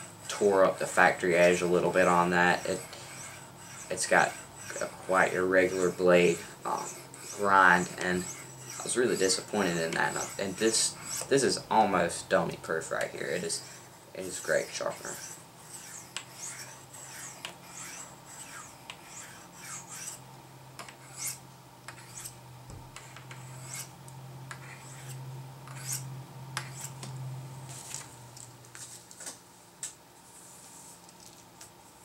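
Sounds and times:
knife blade scraping ceramic rods: 0.3s - 11.6s, 14.4s - 20.2s.

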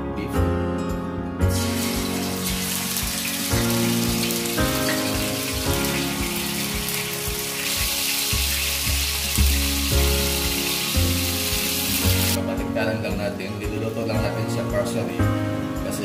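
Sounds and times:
beef sizzling in hot oil: 1.5s - 12.4s.

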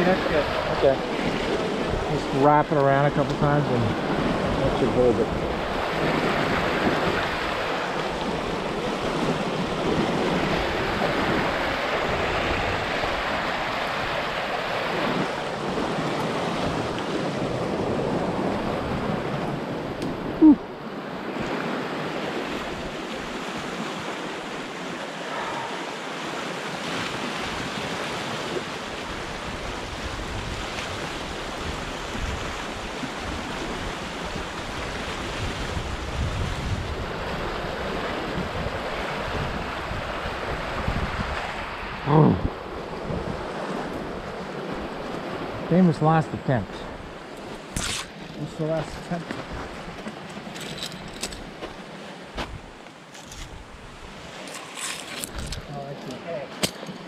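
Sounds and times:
river rushing: 0.0s - 57.0s
wind noise on microphone: 26.9s - 45.7s, 49.4s - 55.7s.

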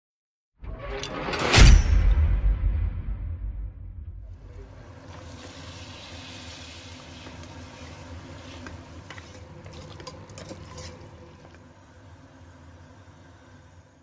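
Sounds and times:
meat sizzling in oil: 4.9s - 10.2s.

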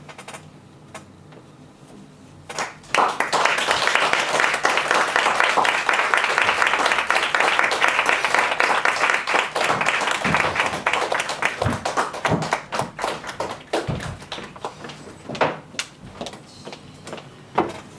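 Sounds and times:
audience applauding: 2.5s - 15.2s.

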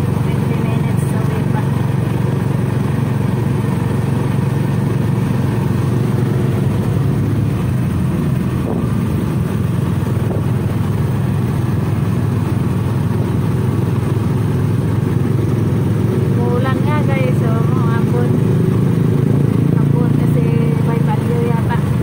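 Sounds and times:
road noise: 0.0s - 22.0s
vehicle engine running: 0.0s - 22.0s.

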